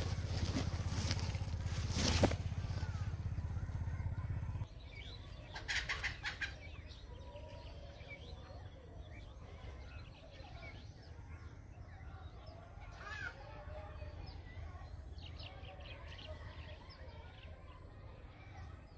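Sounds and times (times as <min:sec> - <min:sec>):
loud bird calls: 0:00.0 - 0:14.6.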